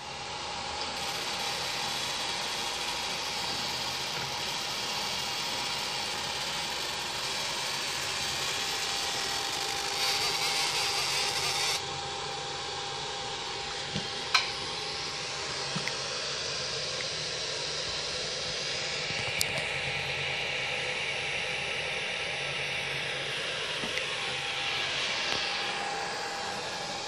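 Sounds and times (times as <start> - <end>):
laser marker whine: 0.0 - 27.0
high hiss of laser burning: 0.9 - 11.8.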